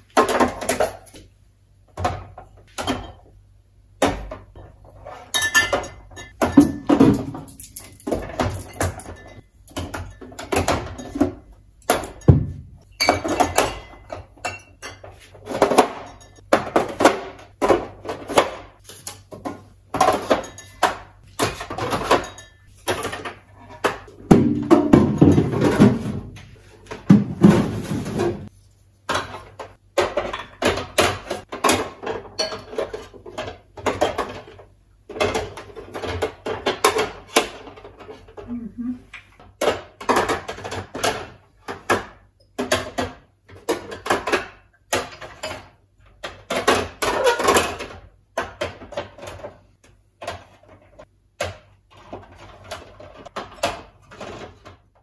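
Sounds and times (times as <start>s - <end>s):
bottles and jars clinking: 4.0s - 26.2s, 29.1s - 38.5s.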